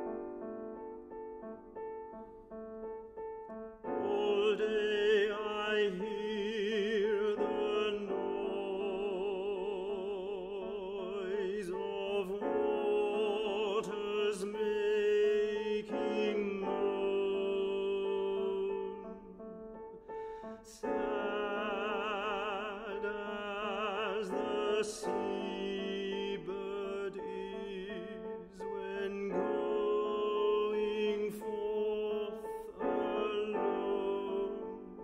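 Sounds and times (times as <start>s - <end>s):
piano accompaniment: 0.0s - 35.0s
tenor singing: 3.9s - 19.4s, 20.2s - 35.0s.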